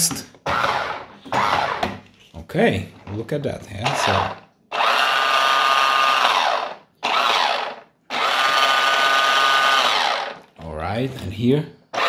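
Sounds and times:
toy car electric motor whining: 0:03.9 - 0:10.5.

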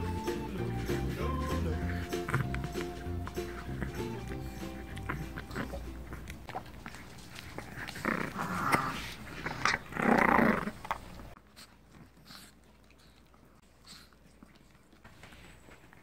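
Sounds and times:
small dog growling: 0:03.5 - 0:06.5, 0:07.5 - 0:10.9.

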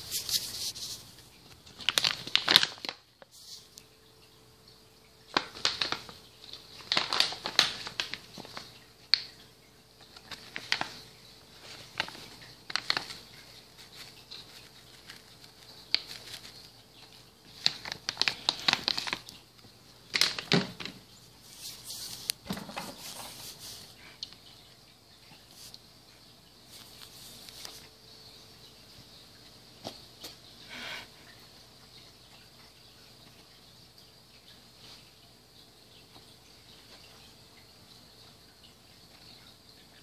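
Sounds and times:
dried leaves crackling and rustling: 0:00.0 - 0:03.6, 0:05.3 - 0:09.4, 0:10.0 - 0:19.4, 0:20.1 - 0:24.0.

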